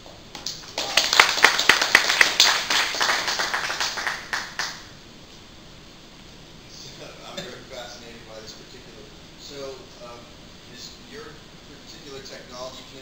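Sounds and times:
audience applauding: 0.4 - 4.9.

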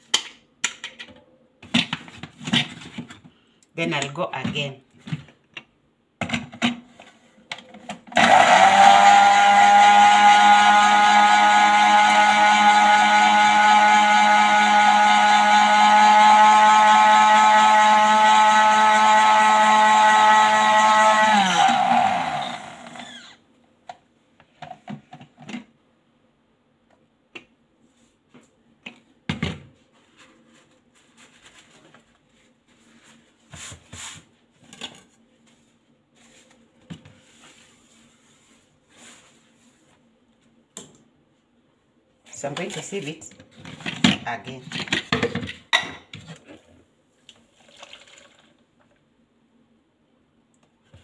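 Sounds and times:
blender motor running: 8.1 - 23.4.

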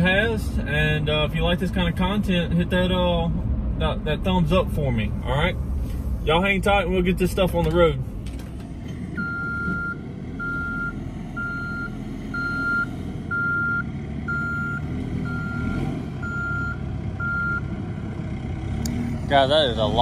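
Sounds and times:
reversing alarm beeping: 9.2 - 17.7.

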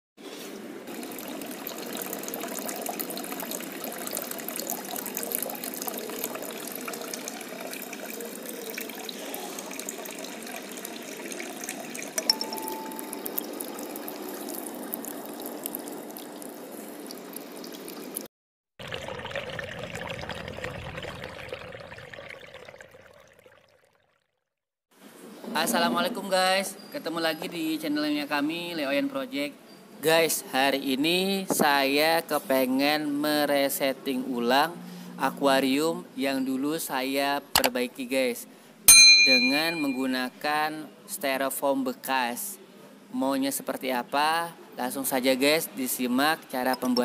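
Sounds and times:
water trickling and splashing: 0.9 - 24.4.

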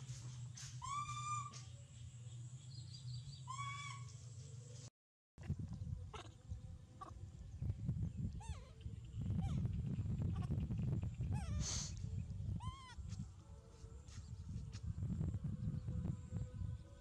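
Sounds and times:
monkey shriek: 0.8 - 1.6, 3.5 - 4.1, 12.6 - 13.0
baby monkey squeaky calls: 0.8 - 1.7, 3.5 - 4.1, 11.3 - 11.8, 12.6 - 13.0.

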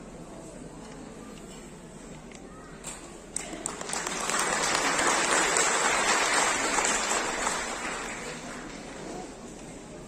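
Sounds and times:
congregation applauding: 3.6 - 9.0.

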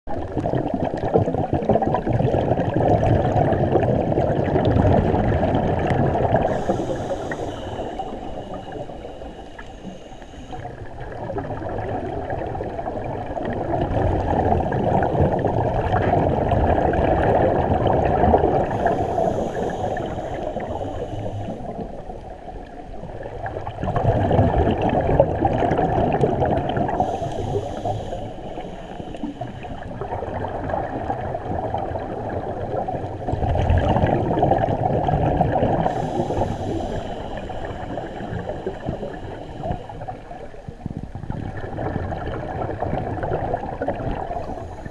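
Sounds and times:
gurgling exhaled bubbles: 0.1 - 44.9
regulator inhalation hiss: 6.4 - 10.9, 18.6 - 22.2, 26.8 - 30.0, 35.8 - 40.4.

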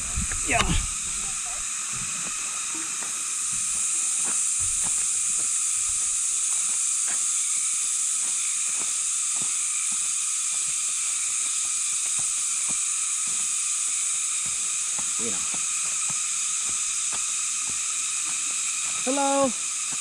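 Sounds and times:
high-pitched hiss: 0.0 - 20.0.

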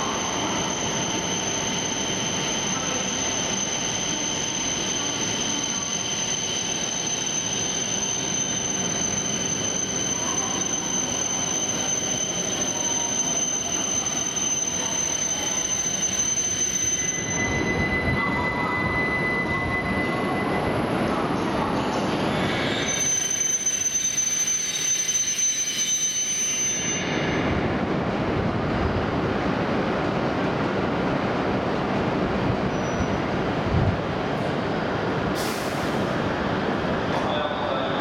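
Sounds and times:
high-pitched brake squeal: 0.0 - 27.5, 32.7 - 33.2.

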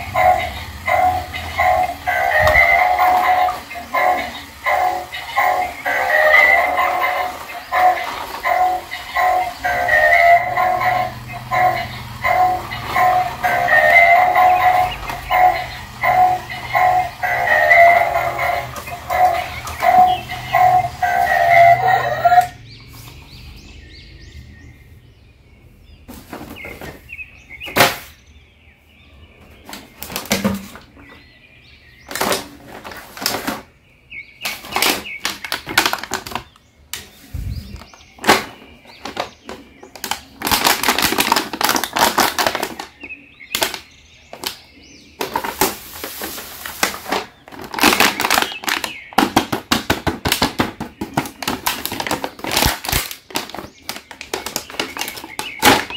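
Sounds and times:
plastic packaging crinkling: 34.5 - 36.6, 37.8 - 43.8, 45.2 - 50.5, 51.1 - 55.9.

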